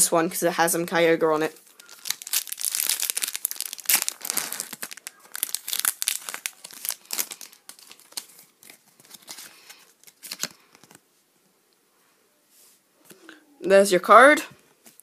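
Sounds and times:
foil wrapper crinkling: 1.6s - 11.0s.

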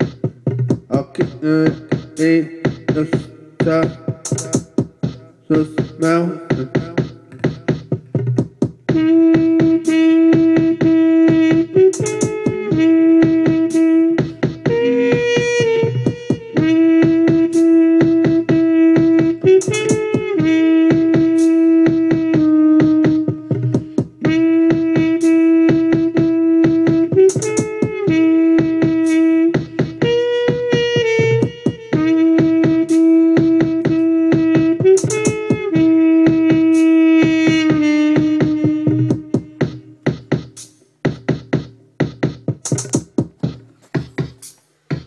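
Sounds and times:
beatboxed rhythm: 0.0s - 45.0s
trumpet playing long notes: 8.9s - 40.1s.

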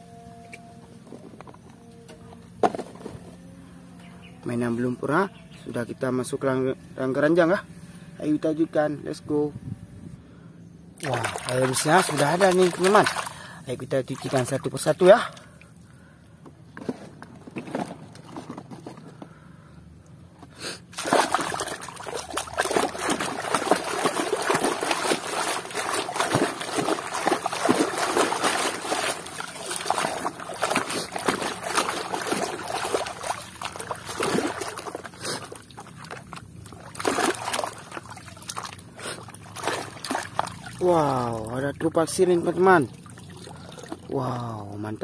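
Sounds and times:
muddy water splashing: 11.0s - 16.1s, 20.8s - 44.5s.

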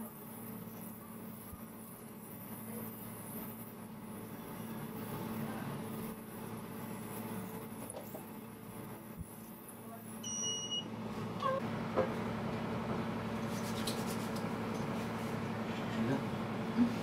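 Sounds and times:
low machine hum: 0.0s - 17.0s
electronic beep: 10.2s - 11.6s.

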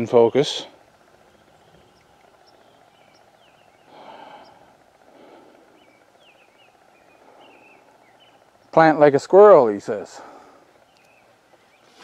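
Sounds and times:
faint birdsong chirps: 0.0s - 12.0s
soft breathy rush: 3.8s - 8.5s, 10.1s - 10.8s.

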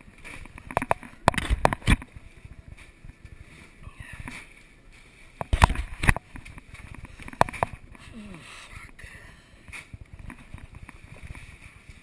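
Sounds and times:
fishing rod knocks and thumps: 7.3s - 7.8s.

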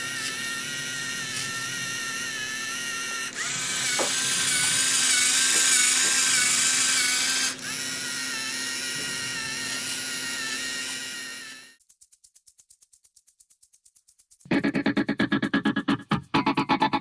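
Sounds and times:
servo motors whirring: 0.0s - 11.8s.

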